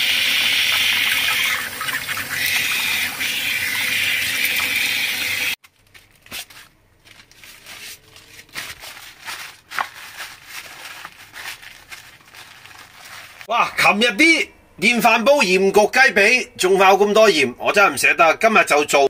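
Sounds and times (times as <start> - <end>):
tap water running: 0.0 - 5.6
paper towels crinkling: 5.6 - 13.5.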